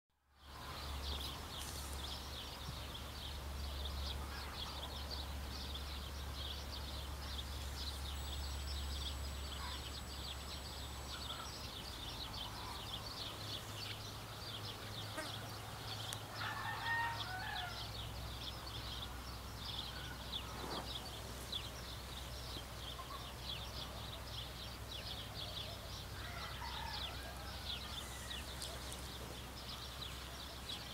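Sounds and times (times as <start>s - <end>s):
low steady hum: 0.3s - 16.5s
high-pitched chirping chorus: 5.7s - 16.8s.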